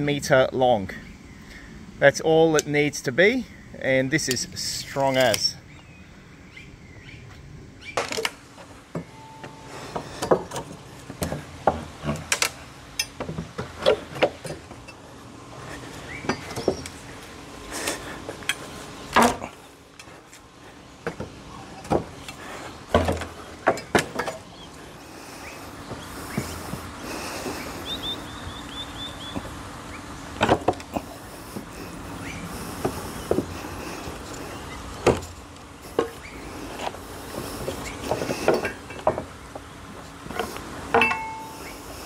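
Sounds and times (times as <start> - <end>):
wooden pallet slats cracking: 19.1 - 19.5.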